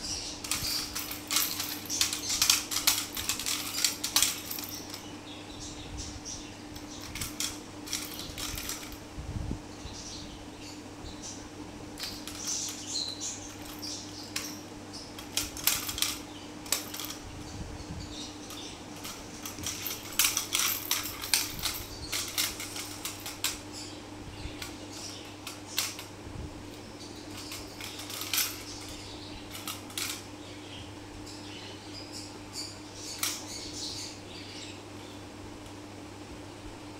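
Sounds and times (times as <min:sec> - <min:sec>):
steady low hum: 0:00.0 - 0:36.9
toy clattering on marble floor: 0:00.4 - 0:05.1, 0:06.8 - 0:09.0, 0:12.0 - 0:17.3, 0:18.1 - 0:26.1, 0:27.2 - 0:30.3, 0:33.0 - 0:33.6.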